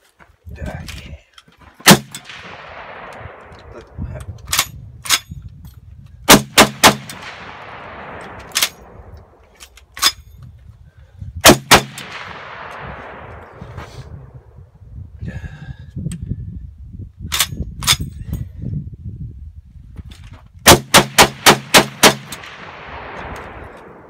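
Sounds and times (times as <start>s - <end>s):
quieter sharp cracks: 1.8s - 5.3s, 6.3s - 10.3s, 11.4s - 14.5s, 20.7s - 24.0s
machine gun shots: 20.7s - 23.6s.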